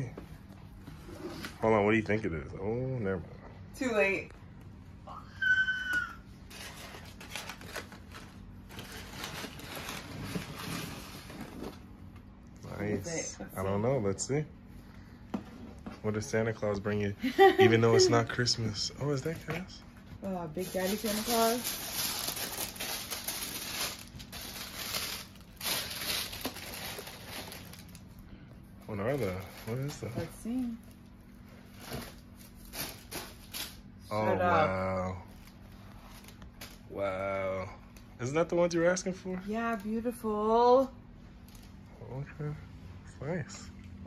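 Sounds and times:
packing paper crinkling: 6.4 - 11.8, 20.6 - 28.2, 28.8 - 33.9.

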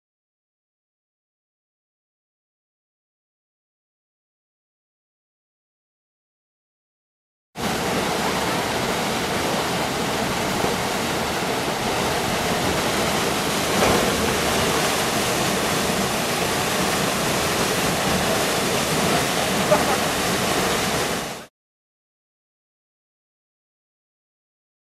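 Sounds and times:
waterfall rushing over boulders: 7.6 - 21.5.

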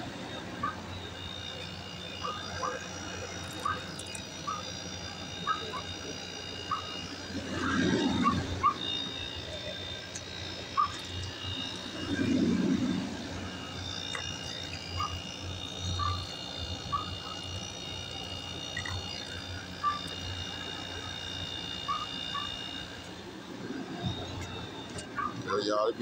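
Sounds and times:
high insect trill: 0.0 - 26.0
frog chirps: 0.3 - 12.2, 13.5 - 23.1.

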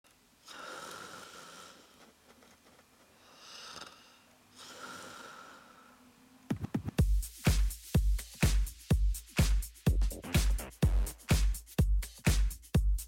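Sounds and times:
man snoring: 0.4 - 2.0, 3.3 - 6.0.

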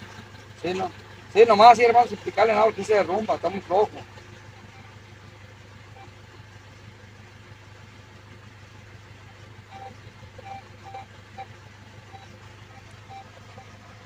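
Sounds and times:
steady low hum: 0.0 - 14.0
metal detector beeps: 9.7 - 11.5, 12.1 - 13.8.

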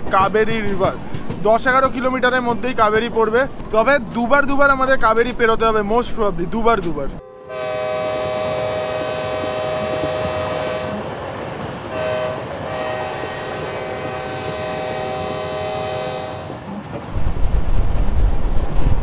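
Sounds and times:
moving train rumble: 0.0 - 19.0
train horn: 7.2 - 11.2, 11.8 - 16.8
wind buffeting microphone: 8.0 - 19.0.

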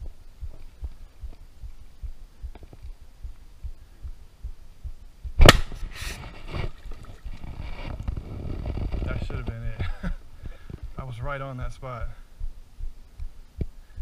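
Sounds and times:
soft low thumps: 0.0 - 14.0
gunshot: 5.4 - 6.0.

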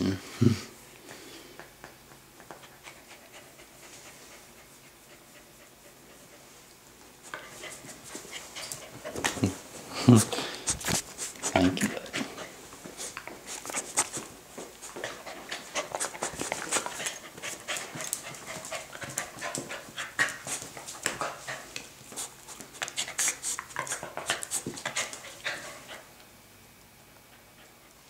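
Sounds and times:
small dog panting: 2.4 - 6.7, 14.8 - 26.1.

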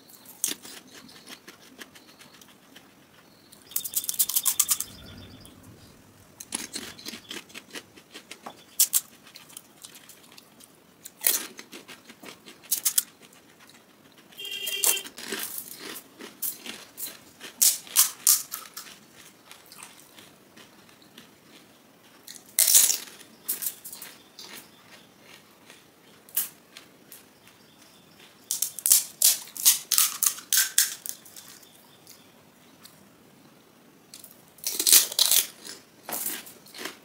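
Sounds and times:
crisp shells crackling and crunching: 0.4 - 5.5, 6.4 - 14.2, 15.1 - 27.2, 28.2 - 31.7, 34.2 - 37.0.

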